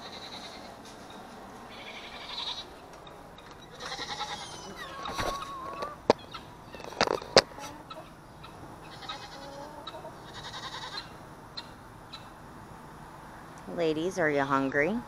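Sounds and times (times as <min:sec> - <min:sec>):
goats bleating: 0:00.0 - 0:00.8, 0:01.6 - 0:02.7, 0:03.7 - 0:05.8, 0:08.8 - 0:11.1.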